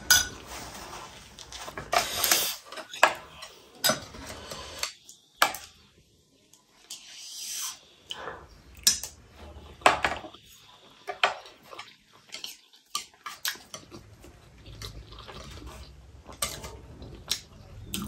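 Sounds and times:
soft chewing: 0:10.6 - 0:18.0.

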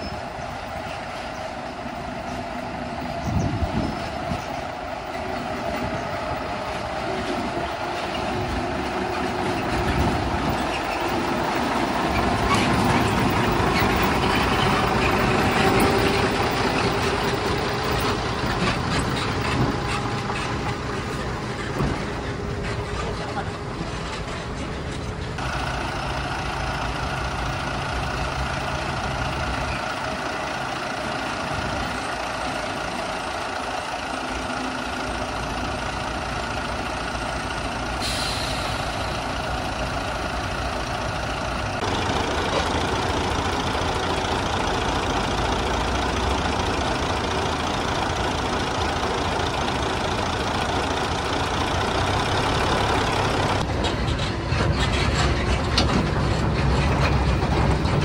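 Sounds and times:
diesel engine idling: 0:00.0 - 0:58.0
short hiss: 0:38.0 - 0:39.0.

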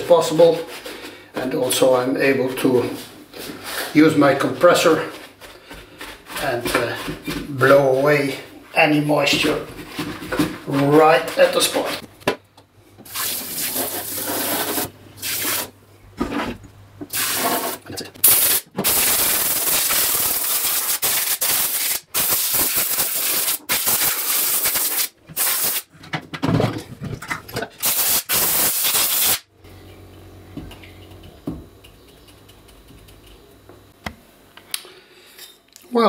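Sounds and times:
compressed air blow gun hissing: 0:27.8 - 0:29.5.

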